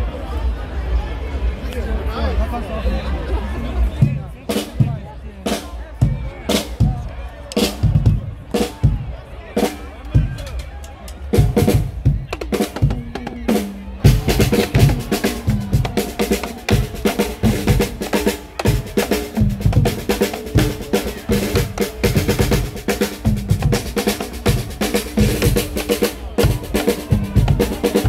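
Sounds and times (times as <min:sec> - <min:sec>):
bass drum: 0:11.4 - 0:25.8, 0:26.4 - 0:28.0
snare drum: 0:11.4 - 0:28.0.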